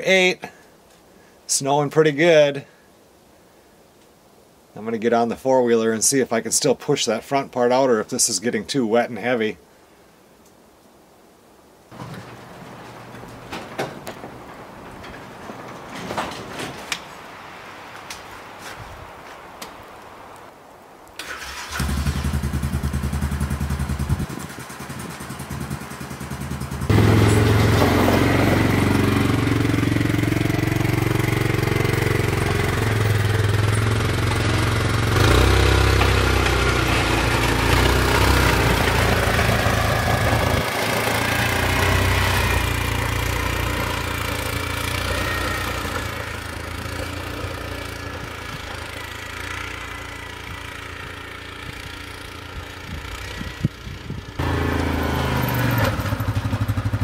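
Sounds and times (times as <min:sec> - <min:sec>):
atv engine starting and revving: 0:21.2 - 0:57.0.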